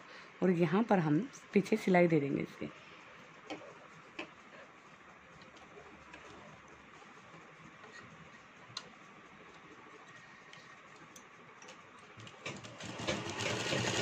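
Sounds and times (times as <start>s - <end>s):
sewing machine stitching: 12.2s - 14.0s.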